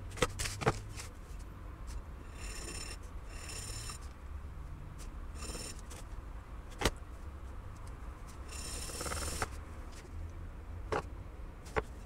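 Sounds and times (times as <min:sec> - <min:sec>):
file scraping: 0:02.3 - 0:04.1, 0:05.4 - 0:06.0, 0:08.4 - 0:09.6.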